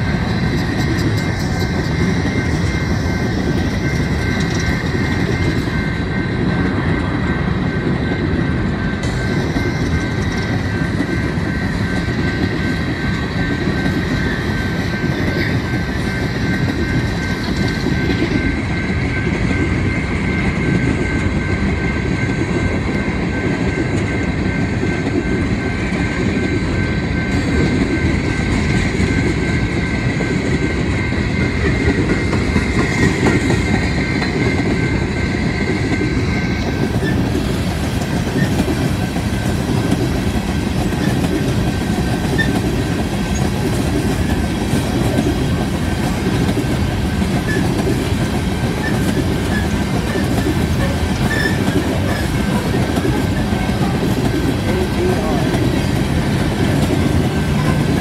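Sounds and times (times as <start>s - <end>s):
freight train rumbling past: 0.0s - 58.0s
high wheel squeal: 22.8s - 39.2s, 42.2s - 43.6s, 47.4s - 58.0s.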